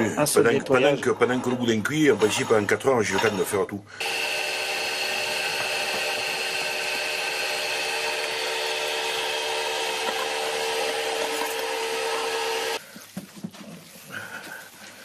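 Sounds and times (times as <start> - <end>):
electric meat mincer whining: 4.0 - 12.8.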